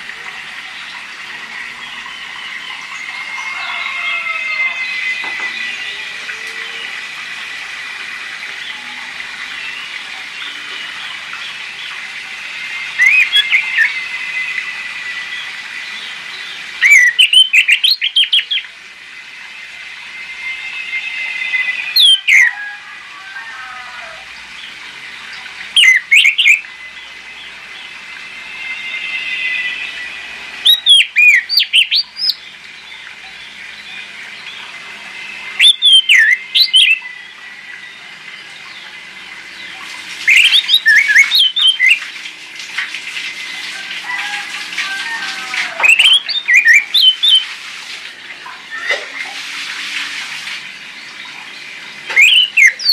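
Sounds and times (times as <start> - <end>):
thrush warbling song: 0.0 - 42.2, 43.4 - 52.9
sharp whistled bird notes: 12.8 - 18.6, 35.5 - 37.2, 40.3 - 42.0, 45.8 - 47.5, 52.2 - 52.9.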